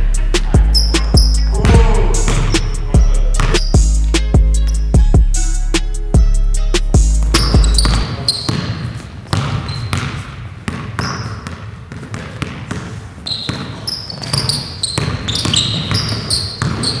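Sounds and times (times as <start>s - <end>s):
sneaker squeaks: 0.6s - 1.6s, 3.4s - 3.9s, 4.6s - 4.9s, 7.2s - 17.0s
basketball bouncing on hardwood: 7.3s - 17.0s.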